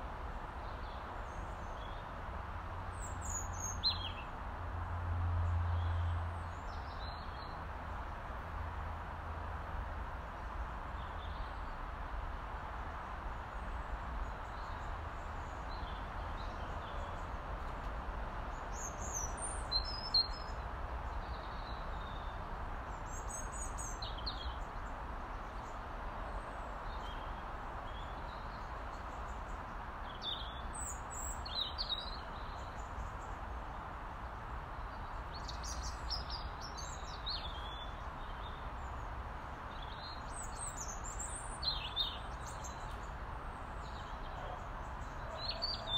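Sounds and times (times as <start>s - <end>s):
robin calling: 43.8s - 45.9s.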